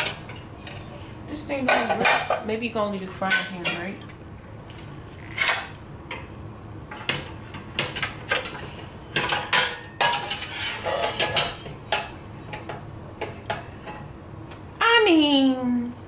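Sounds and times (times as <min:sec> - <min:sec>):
pans clanking on wire rack: 0:01.6 - 0:02.5, 0:06.9 - 0:14.1.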